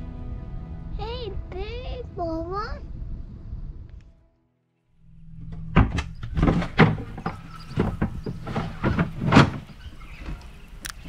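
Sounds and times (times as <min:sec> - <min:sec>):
wooden door knocks and clunks: 0:05.5 - 0:10.4
hatch scraping slides: 0:06.0 - 0:11.0.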